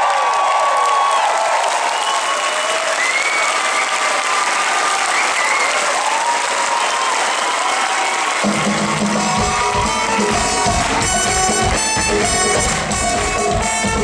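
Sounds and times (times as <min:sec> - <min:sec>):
audience applauding: 0:00.0 - 0:14.0
audience calls: 0:00.0 - 0:14.0
band playing pulsing beat: 0:08.4 - 0:14.0.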